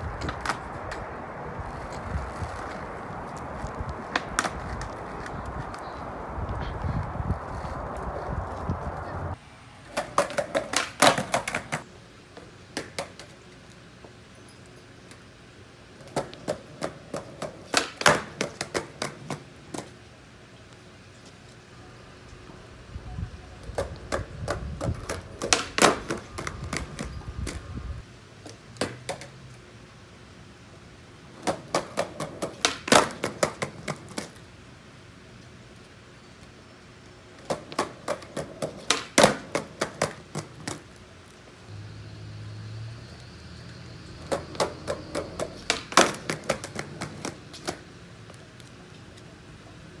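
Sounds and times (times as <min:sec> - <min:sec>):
skateboard wheels clacking on pavers: 0:00.0 - 0:14.2, 0:15.9 - 0:20.1, 0:23.6 - 0:27.8, 0:28.4 - 0:29.6, 0:31.2 - 0:34.5, 0:37.0 - 0:41.4, 0:44.2 - 0:50.0.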